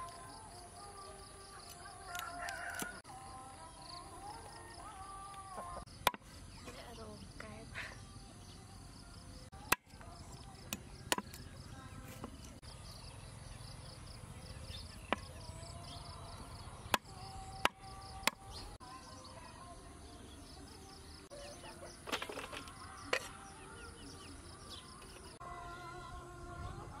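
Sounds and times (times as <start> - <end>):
insects chirring: 0.0 - 25.4
cleaver chopping on wooden block: 6.0 - 6.2.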